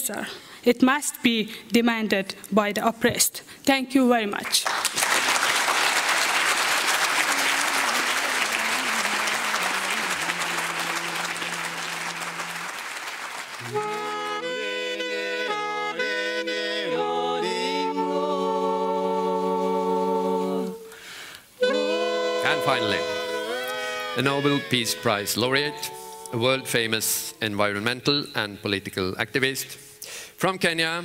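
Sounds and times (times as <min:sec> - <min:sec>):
audience applause: 0:04.6 - 0:14.5
wind instrument melody: 0:07.0 - 0:27.4.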